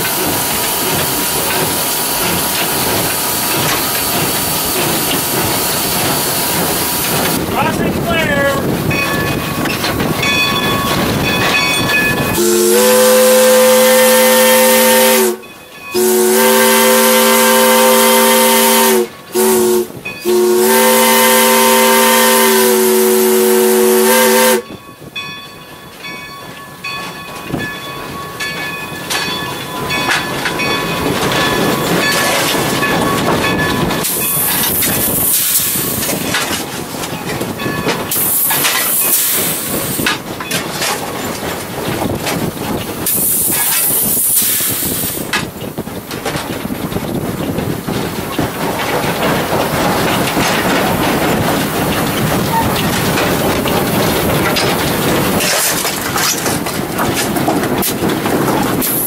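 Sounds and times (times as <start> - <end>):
steam hiss and locomotive running: 0.0 - 59.0
steam locomotive whistle blasts: 12.3 - 24.7.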